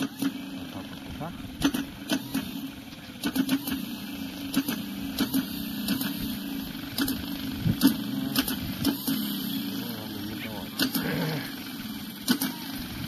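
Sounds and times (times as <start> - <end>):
low mechanical hum: 0.0 - 13.0
sharp clicks and knocks: 1.6 - 3.8.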